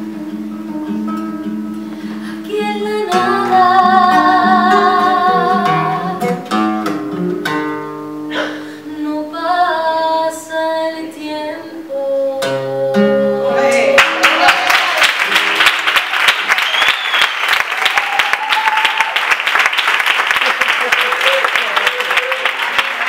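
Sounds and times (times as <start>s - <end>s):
nylon-string guitar: 0.0s - 14.5s, 15.3s - 15.9s
woman singing: 2.3s - 6.5s, 8.8s - 14.6s.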